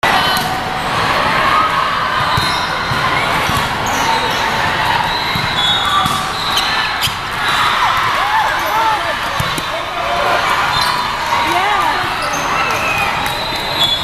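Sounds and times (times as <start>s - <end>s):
background chatter: 0.0s - 14.0s
volleyballs hit and bouncing: 2.2s - 11.9s.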